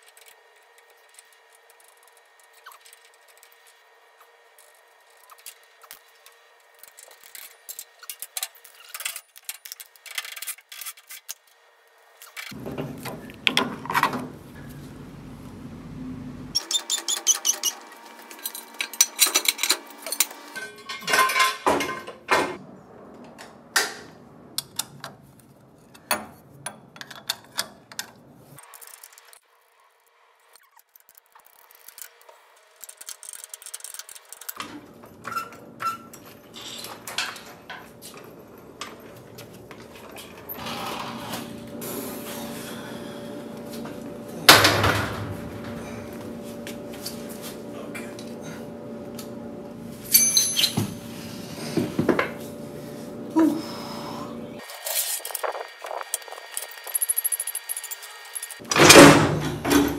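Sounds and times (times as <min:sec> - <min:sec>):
steady hum: 0:12.6 - 0:16.6
metal tools clinking and knocking: 0:18.3 - 0:22.2, 0:50.1 - 0:50.8.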